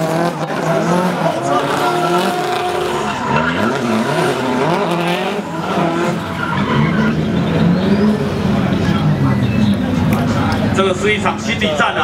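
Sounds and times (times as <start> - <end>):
car engine revving: 0.0 - 11.9
tyre squeal: 1.4 - 8.4.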